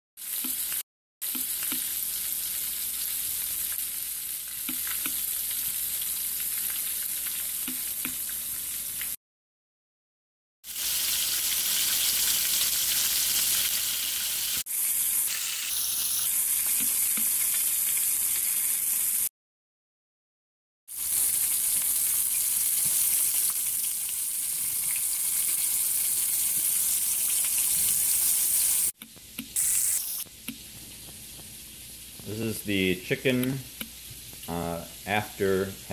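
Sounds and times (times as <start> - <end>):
chicken sizzling in hot oil: 0.2 - 9.2, 10.6 - 19.3, 20.9 - 34.6.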